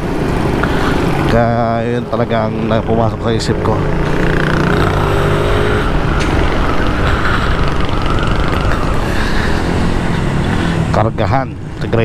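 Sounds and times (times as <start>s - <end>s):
scooter engine running: 2.4s - 10.9s.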